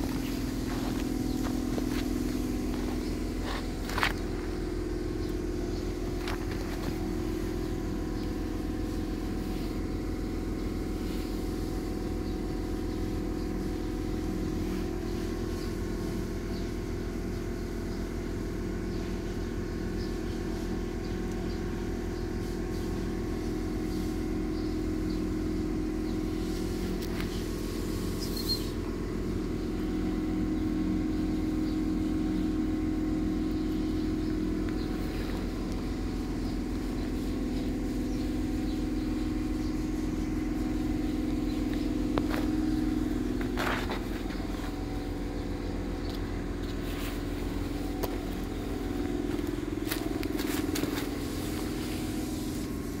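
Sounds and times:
motor humming: 0.0s - 53.0s.

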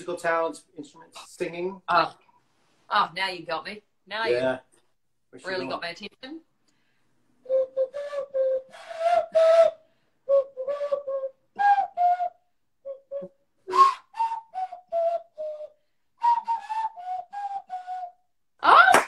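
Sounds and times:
hand flute playing a tune: 7.4s - 18.2s.

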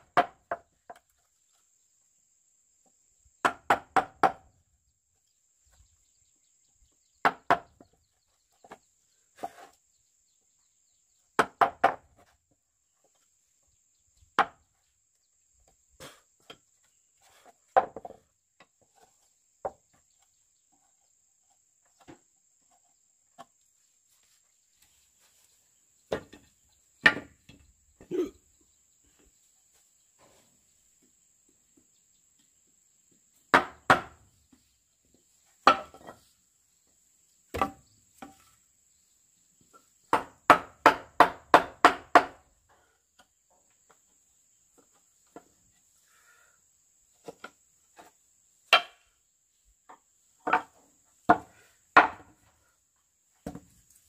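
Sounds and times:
hand tool striking wood: 33.5s - 34.2s, 35.6s - 36.2s, 37.5s - 38.5s, 40.1s - 42.4s, 48.7s - 49.0s, 50.4s - 52.4s.

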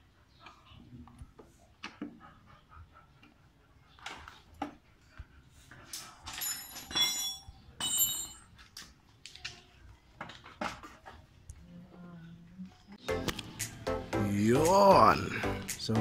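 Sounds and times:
tools and parts rattling: 6.0s - 8.9s
sharp metallic clinks: 6.3s - 8.5s.

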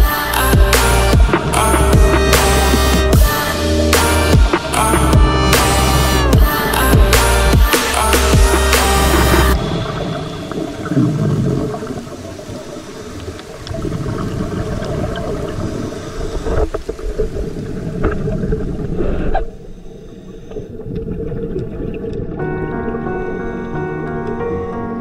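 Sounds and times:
underwater bubbles rumbling: 4.7s - 24.4s.

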